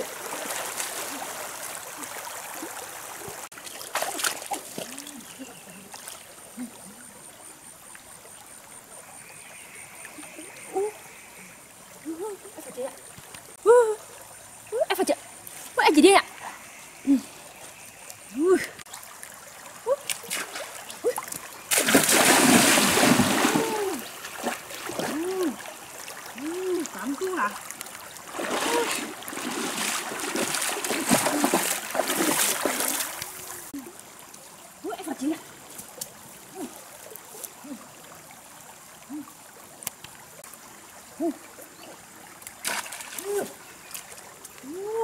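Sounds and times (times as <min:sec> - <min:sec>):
water splashing from wading: 0:00.0 - 0:07.2, 0:18.2 - 0:33.9, 0:35.6 - 0:44.8
stream trickling: 0:00.0 - 0:45.0.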